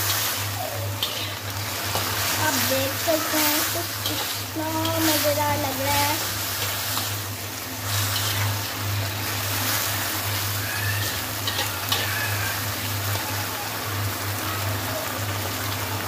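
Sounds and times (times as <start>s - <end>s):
metal spatula scraping a pan: 0.0s - 7.2s, 7.8s - 12.6s
potatoes sizzling in a pan: 0.0s - 16.0s.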